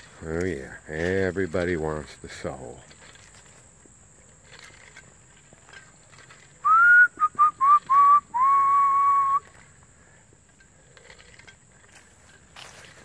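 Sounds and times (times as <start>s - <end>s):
person whistling: 6.6s - 9.6s.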